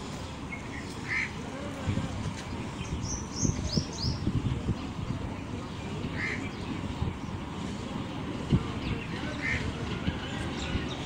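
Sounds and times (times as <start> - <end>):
birds chirping: 2.4 - 11.0.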